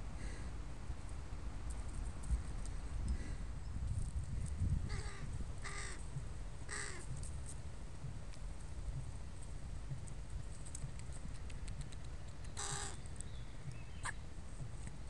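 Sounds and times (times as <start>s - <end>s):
crow cawing: 4.9s - 6.0s, 6.7s - 7.0s, 12.6s - 13.0s
beaks ticking picking peanuts: 10.1s - 14.1s.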